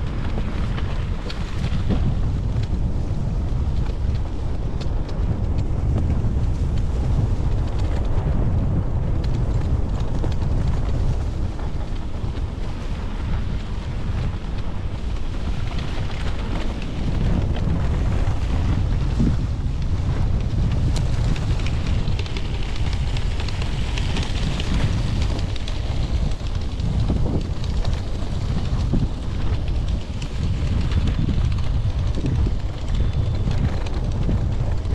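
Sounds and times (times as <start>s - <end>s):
dirt bike engine running: 0.0s - 34.9s
wind buffeting microphone: 0.0s - 34.9s.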